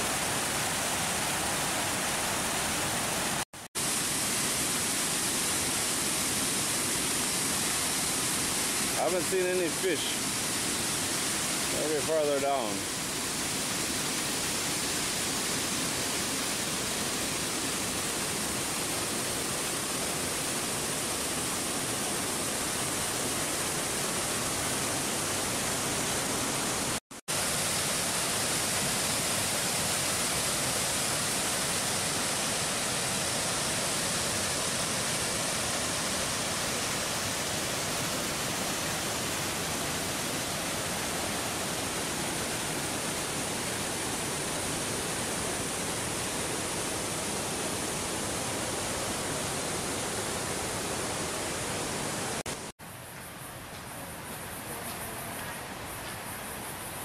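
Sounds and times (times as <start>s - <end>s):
waterfall and rapids rushing: 0.0s - 57.0s.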